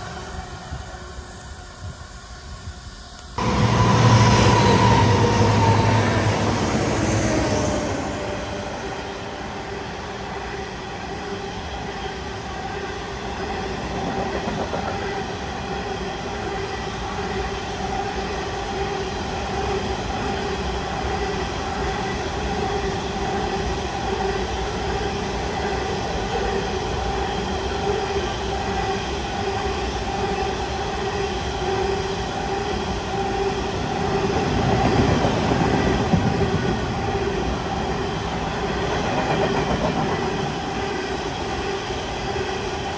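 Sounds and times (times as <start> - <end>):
train wheels rumbling on rails: 0.0 - 42.9.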